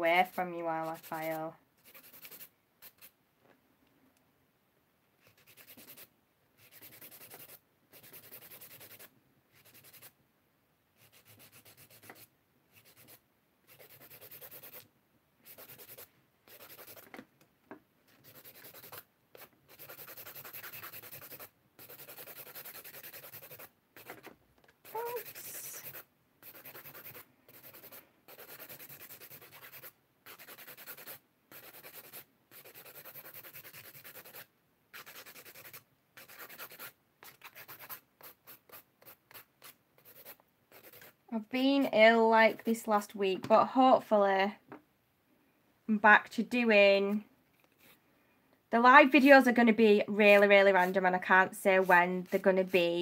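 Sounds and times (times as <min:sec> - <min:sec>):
nail file rasping: 0:00.8 - 0:03.2, 0:05.2 - 0:10.2, 0:11.0 - 0:17.1, 0:18.1 - 0:41.2.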